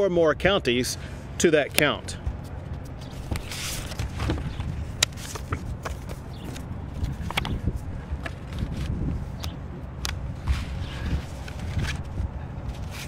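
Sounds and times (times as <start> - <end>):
low steady rumble: 0.0 - 13.0
paper and pen rustling: 2.2 - 9.0, 10.4 - 13.0.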